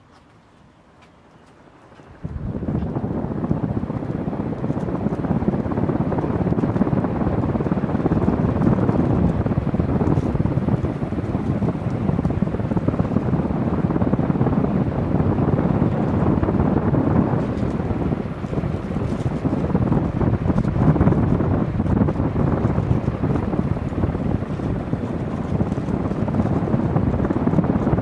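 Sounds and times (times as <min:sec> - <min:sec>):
ceiling fan air rushing: 0:00.0 - 0:28.0.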